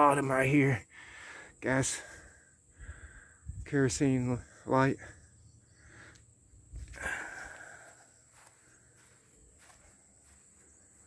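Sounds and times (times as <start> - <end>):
footsteps on grass: 6.7 - 11.0.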